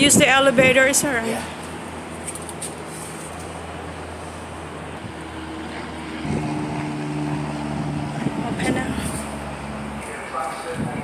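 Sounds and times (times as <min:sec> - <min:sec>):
engine-like drone: 0:00.0 - 0:11.0.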